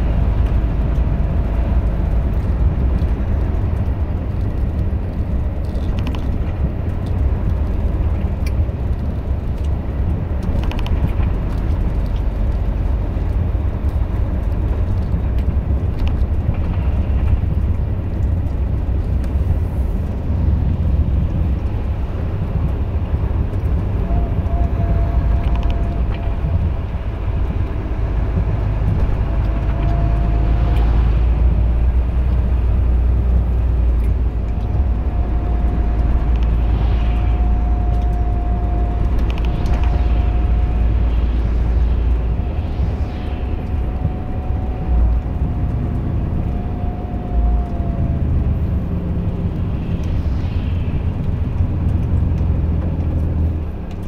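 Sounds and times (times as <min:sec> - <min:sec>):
truck diesel engine drone in cab: 0:00.0 - 0:54.0
thin steady whine: 0:19.3 - 0:54.0.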